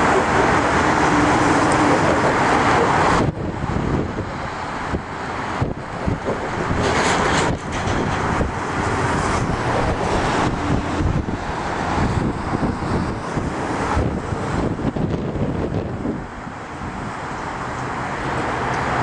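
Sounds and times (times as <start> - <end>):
bus passing: 0.0 - 19.0
highway traffic: 0.0 - 19.0
wind buffeting microphone: 0.0 - 19.0.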